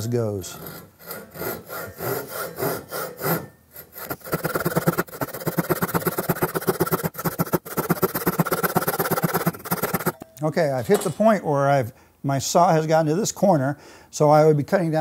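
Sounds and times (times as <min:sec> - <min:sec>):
hand saw cutting wood: 0:00.0 - 0:10.2.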